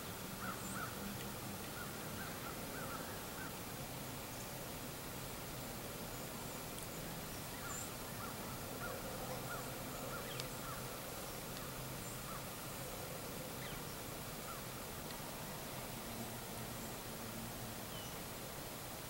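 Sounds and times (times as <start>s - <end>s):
steady hiss: 0.0s - 19.0s
distant bird calls: 0.4s - 3.6s, 6.0s - 18.3s
faint click: 10.2s - 10.6s.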